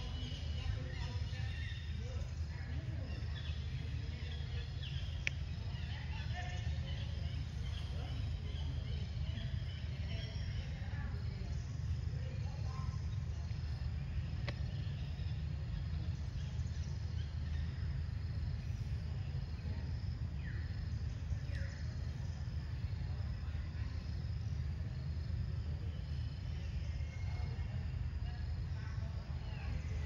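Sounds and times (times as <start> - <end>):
insects droning: 0.0 - 30.0
faint click: 5.1 - 5.5, 14.4 - 14.9.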